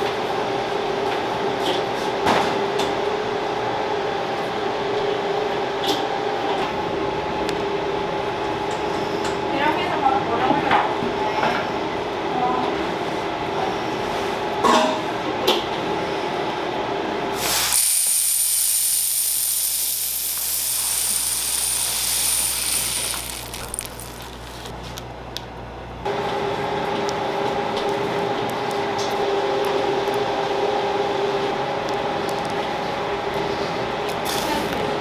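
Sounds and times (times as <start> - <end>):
mechanical hum: 0.0 - 35.0
sprinkles pouring into metal bowl: 17.4 - 24.6.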